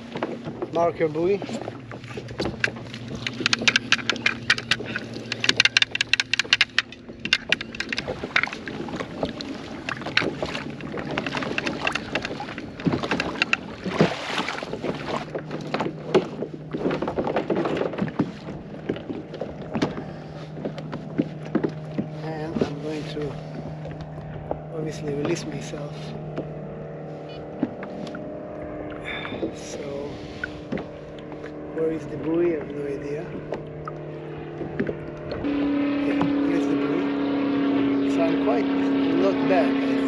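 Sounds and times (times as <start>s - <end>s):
gear being handled knocks: 2.2s - 8.6s.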